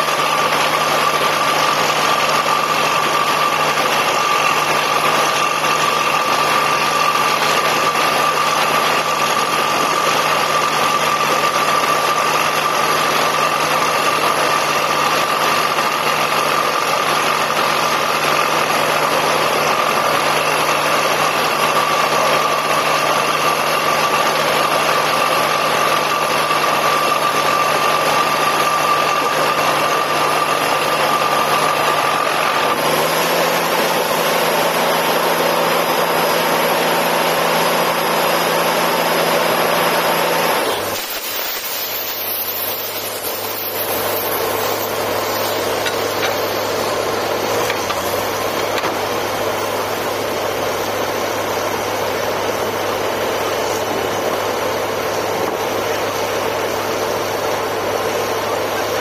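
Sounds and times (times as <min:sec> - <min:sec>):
drilling rig running: 0:00.0 - 0:59.0
high machine whine: 0:00.0 - 0:59.0.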